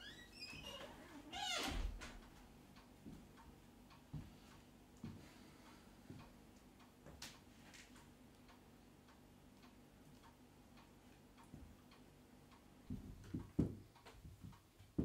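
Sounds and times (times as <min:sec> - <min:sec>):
wall clock ticking: 0:02.1 - 0:15.0
low thumps and knocks: 0:12.9 - 0:15.0.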